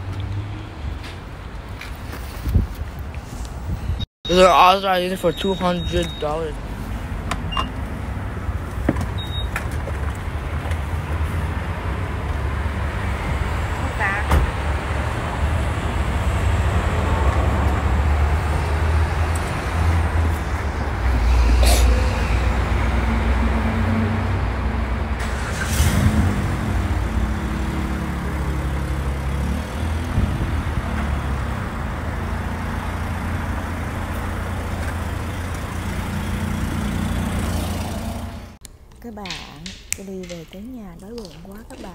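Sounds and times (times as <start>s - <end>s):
traffic rumble: 0.0s - 41.9s
vehicle engine wavering in pitch: 15.8s - 38.6s
short hisses: 21.1s - 22.7s.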